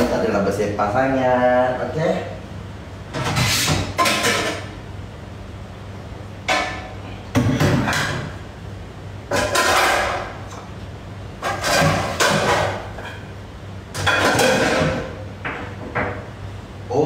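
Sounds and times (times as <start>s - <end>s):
steady low hum: 0.0s - 17.0s
dishes and utensils clattering: 3.2s - 4.7s, 6.5s - 8.4s, 9.3s - 10.5s, 11.4s - 13.3s, 14.0s - 16.2s.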